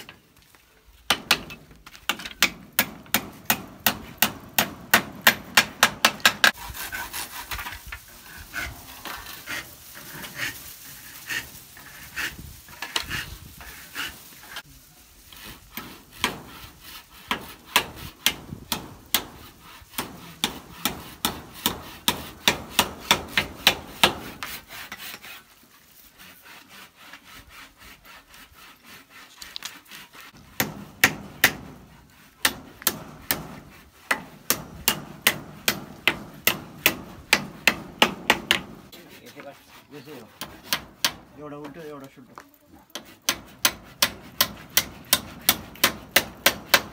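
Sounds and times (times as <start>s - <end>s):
hand tool striking bamboo: 1.1s - 6.6s, 15.4s - 25.3s, 30.5s - 38.9s, 40.3s - 41.4s, 42.9s - 46.9s.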